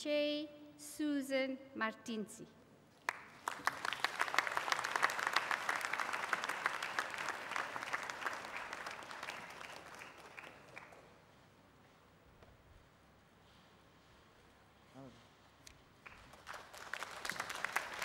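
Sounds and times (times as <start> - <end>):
audience applauding: 3.0 - 11.2, 16.0 - 18.0.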